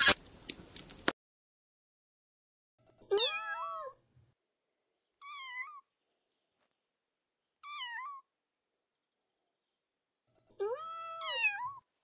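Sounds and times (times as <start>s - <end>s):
kitten meowing: 10.6s - 11.8s.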